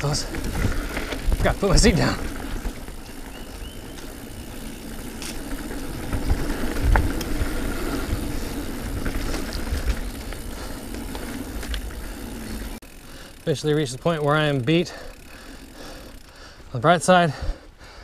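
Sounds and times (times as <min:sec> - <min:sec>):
bike tyres on dirt trail: 0:00.0 - 0:18.0.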